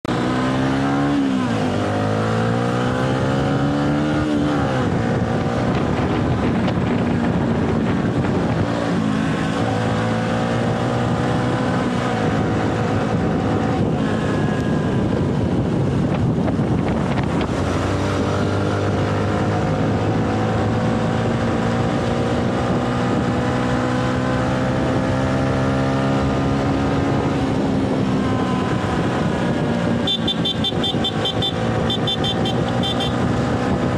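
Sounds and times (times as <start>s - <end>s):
motorcycle engine shifting gears: 0.0s - 33.9s
wind rushing over microphone: 0.1s - 33.9s.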